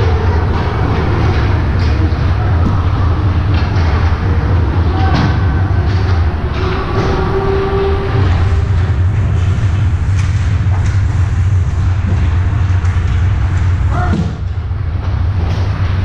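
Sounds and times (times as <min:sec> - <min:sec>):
low rumble of rink: 0:00.0 - 0:16.0
pucks and sticks clacking: 0:00.0 - 0:16.0.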